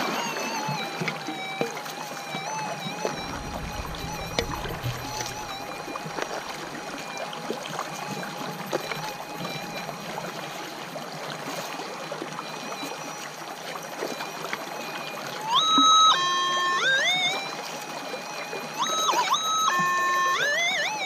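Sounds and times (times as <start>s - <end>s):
creek water running: 0.3s - 14.8s
faint steady detector tone: 0.4s - 11.7s.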